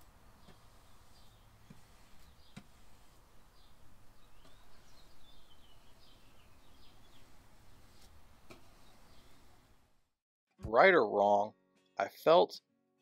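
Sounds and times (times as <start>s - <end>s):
small birds chirping: 0.4s - 9.6s.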